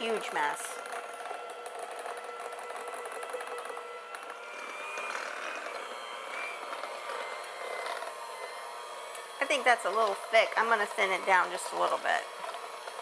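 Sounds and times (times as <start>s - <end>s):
electric hand mixer whirring: 0.0s - 13.0s.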